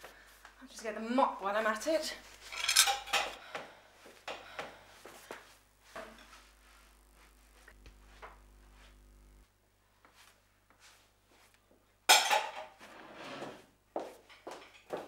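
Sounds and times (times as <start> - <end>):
dishes and cutlery clattering: 2.5 - 3.4, 12.1 - 12.8.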